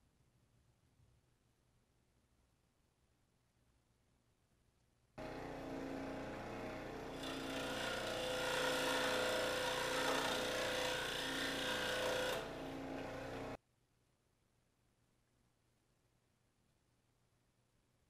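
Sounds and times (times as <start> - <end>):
scroll saw cutting wood: 5.2 - 13.6.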